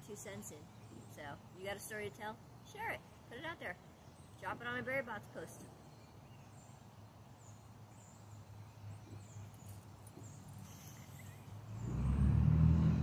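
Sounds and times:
vehicle engine approaching: 11.1 - 13.0.

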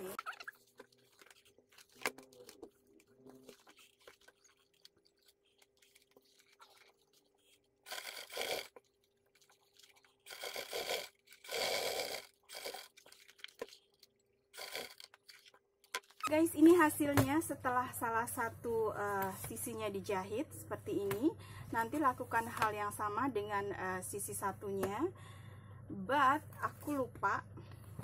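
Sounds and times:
rustling and crinkling of material: 0.0 - 7.8
faint steady hum: 16.3 - 28.0.

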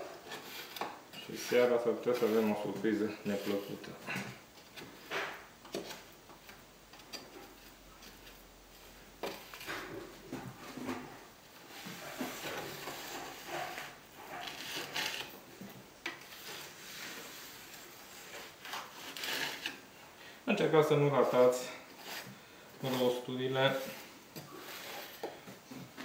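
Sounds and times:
trowel scraping on tiles: 0.2 - 3.9, 11.9 - 15.3, 16.2 - 19.8, 22.0 - 25.3.

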